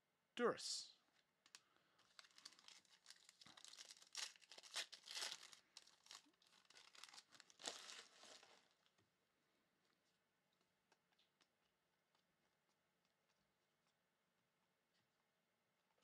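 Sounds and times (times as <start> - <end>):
foil wrapper crinkling and tearing: 1.4 - 8.8
cards pulled out crackling: 1.5 - 8.6.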